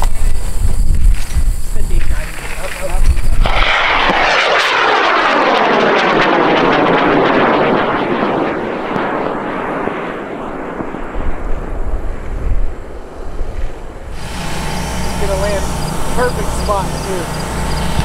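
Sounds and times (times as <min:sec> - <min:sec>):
rocket motor roaring: 0:00.0 - 0:07.8, 0:14.1 - 0:18.0.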